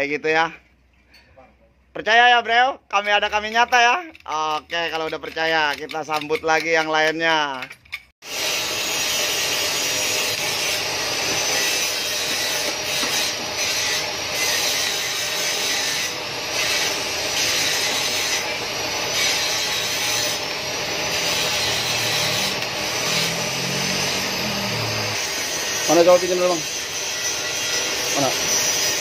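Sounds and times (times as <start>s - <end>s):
welding arc hissing: 8.2s - 29.0s.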